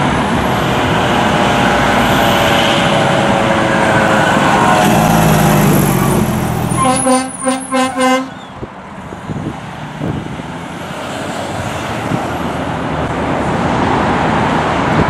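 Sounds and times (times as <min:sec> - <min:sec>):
road traffic noise: 0:00.0 - 0:15.0
truck engine: 0:00.0 - 0:15.0
fire engine horn blasts: 0:06.7 - 0:08.7.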